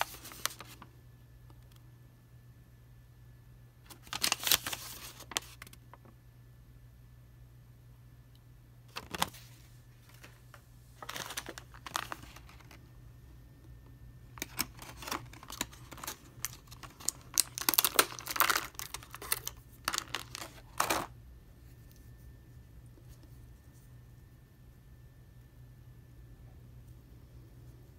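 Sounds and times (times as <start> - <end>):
paper insert rustling: 0.0 - 0.9, 3.9 - 5.9, 8.9 - 12.9, 14.4 - 21.1
plastic blister tray crinkling: 0.0 - 0.9, 3.9 - 6.1, 8.9 - 12.9, 14.3 - 21.2.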